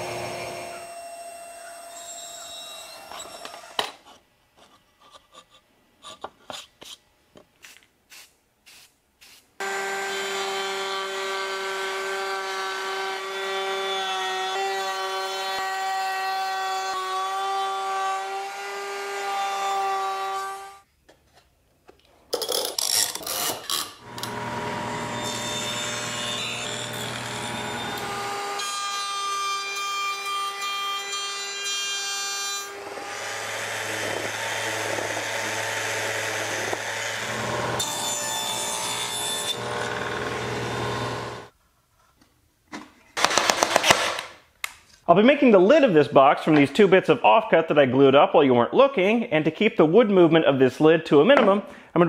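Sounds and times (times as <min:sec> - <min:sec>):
router cutting wood: 0:00.0 - 0:03.9, 0:09.6 - 0:20.8, 0:24.0 - 0:41.5.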